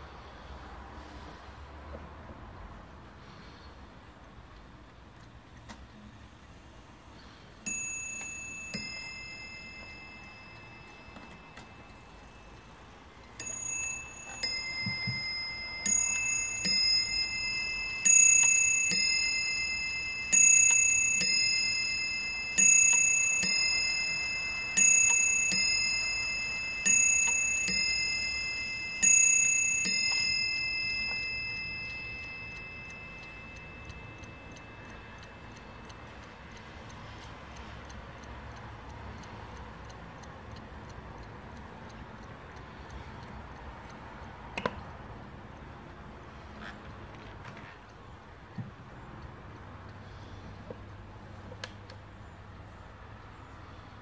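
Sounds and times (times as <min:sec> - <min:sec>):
clock bells ding-dong strikes: 0:07.7 - 0:12.6, 0:13.4 - 0:36.1.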